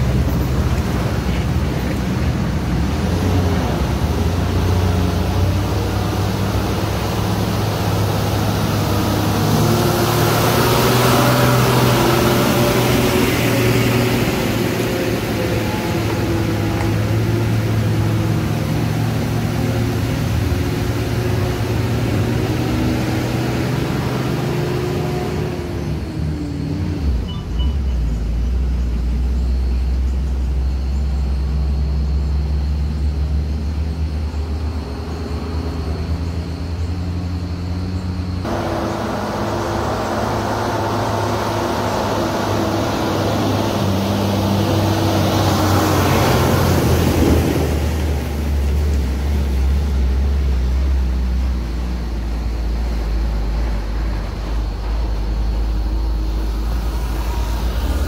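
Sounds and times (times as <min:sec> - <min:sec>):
diesel truck engines droning: 0:00.0 - 0:58.0.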